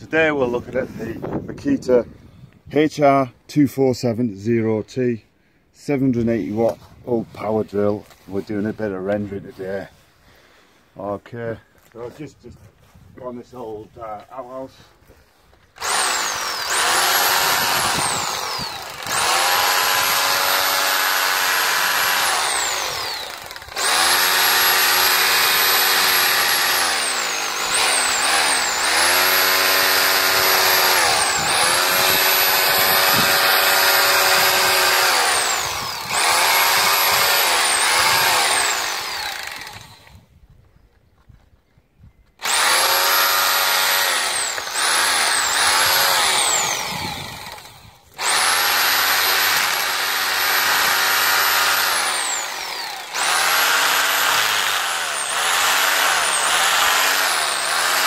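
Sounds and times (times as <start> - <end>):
motor winding down: 15.8 - 40.1, 42.4 - 58.0
rotary hammer drilling into stone: 15.8 - 40.1, 42.4 - 58.0.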